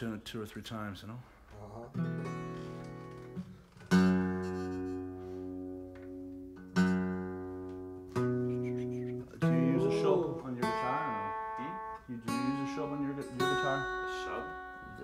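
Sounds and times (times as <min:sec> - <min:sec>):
acoustic guitar chords ringing: 0:02.0 - 0:15.0.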